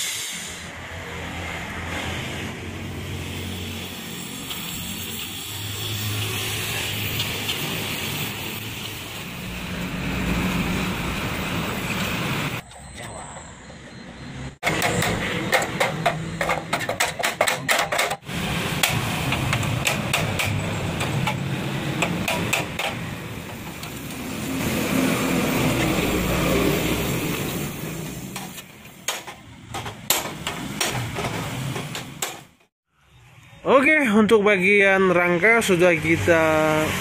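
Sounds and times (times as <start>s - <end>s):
hammer striking steel frame: 14.6s - 18.2s, 22.0s - 23.1s, 29.0s - 32.6s.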